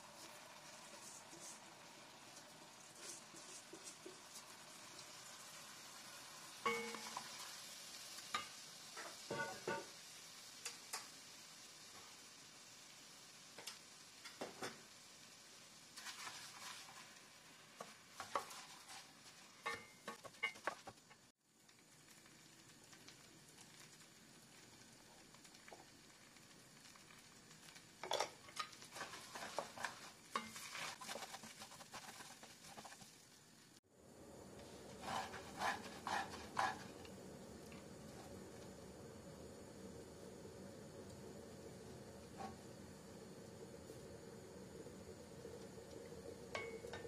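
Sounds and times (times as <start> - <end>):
faint sizzle: 0.0 - 47.0
spoon stirring rice in metal pan: 0.2 - 5.3, 6.6 - 9.9, 16.0 - 21.2, 28.0 - 33.2, 34.6 - 38.3.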